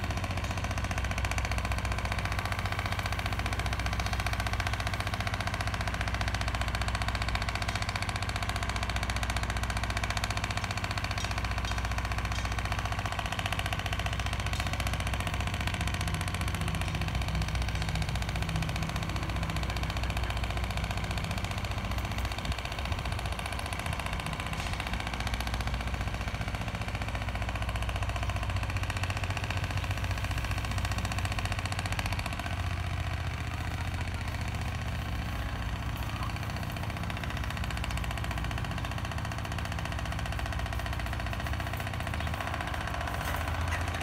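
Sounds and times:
motor humming with fast rattle: 0:00.0 - 0:44.0.

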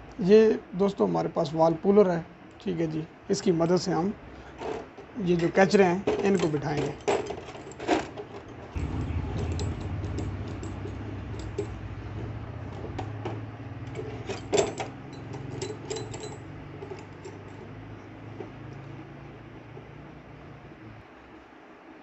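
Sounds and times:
low mechanical hum: 0:00.0 - 0:22.0
metal clinks and taps: 0:06.2 - 0:18.6.

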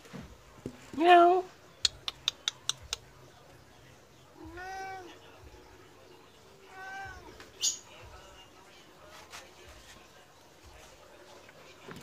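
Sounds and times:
cat meowing: 0:04.4 - 0:05.2, 0:06.6 - 0:07.4.

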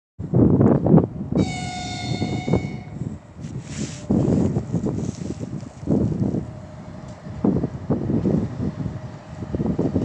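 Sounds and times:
wind buffeting microphone: 0:00.2 - 0:10.0
locomotive horn: 0:01.4 - 0:03.1.

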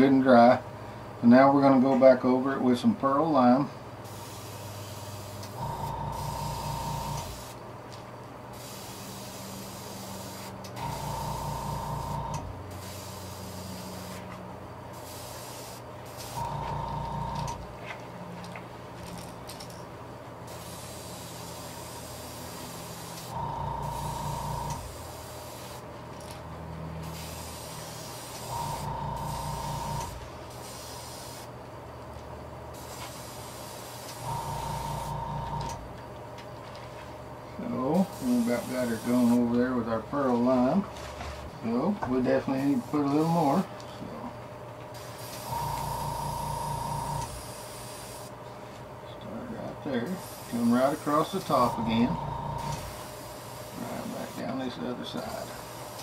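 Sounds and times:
air compressor hum and hiss: 0:00.0 - 0:56.0
airbrush spraying: 0:04.0 - 0:07.6, 0:08.6 - 0:14.3, 0:14.9 - 0:16.5, 0:20.5 - 0:25.9, 0:27.0 - 0:31.5, 0:32.7 - 0:35.2, 0:38.0 - 0:39.5, 0:42.5 - 0:43.6, 0:45.0 - 0:48.3, 0:50.0 - 0:52.0, 0:52.6 - 0:56.0.

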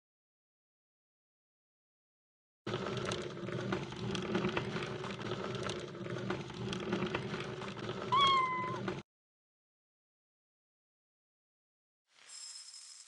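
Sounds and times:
cat meowing: 0:08.1 - 0:08.9.

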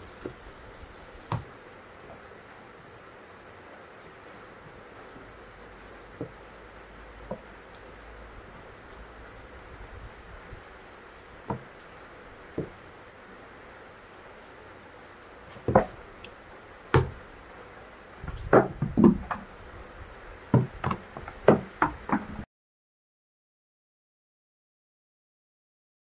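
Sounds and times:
falling rain hiss: 0:00.0 - 0:22.4
heels knocking on wooden steps: 0:11.5 - 0:11.7, 0:12.6 - 0:12.8, 0:15.6 - 0:16.0, 0:17.0 - 0:17.2, 0:18.3 - 0:19.5, 0:20.5 - 0:22.4.

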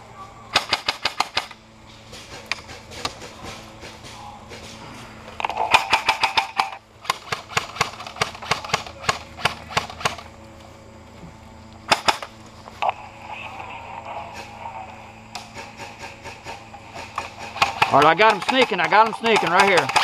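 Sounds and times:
airsoft guns firing: 0:00.5 - 0:01.6, 0:05.5 - 0:10.3, 0:11.9 - 0:12.3, 0:15.3 - 0:20.0.

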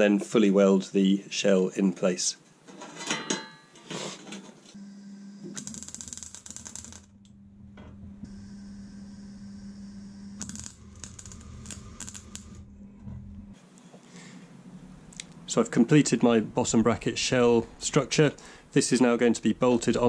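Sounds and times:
welder low hum: 0:04.8 - 0:13.6
crackling welding arc: 0:05.4 - 0:07.2, 0:08.3 - 0:12.6.

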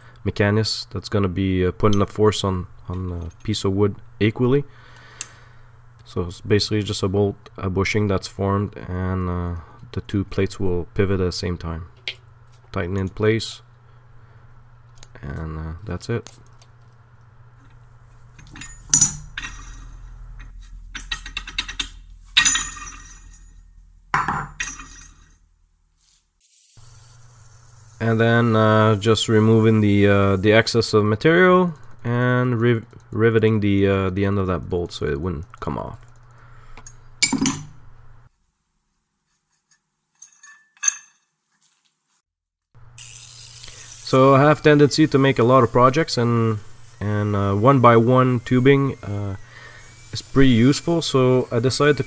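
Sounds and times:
metal tools clattering: 0:18.4 - 0:25.4, 0:39.7 - 0:41.4
metallic clinks: 0:18.4 - 0:25.4.

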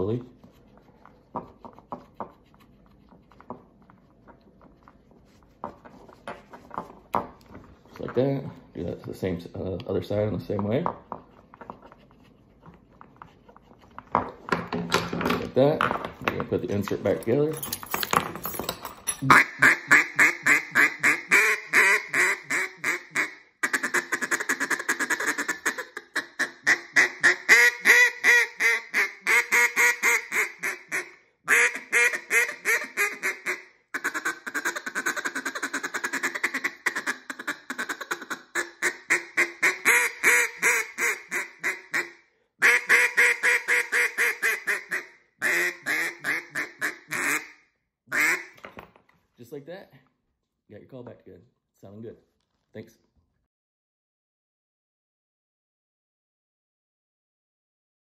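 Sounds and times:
duck call quacking: 0:19.2 - 0:48.6.

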